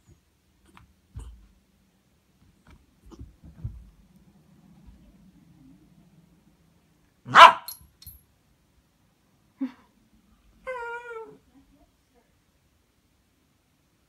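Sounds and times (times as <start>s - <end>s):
dog yip: 7.3s - 7.8s
small dog barking: 7.3s - 7.8s
dog whining: 10.6s - 11.4s.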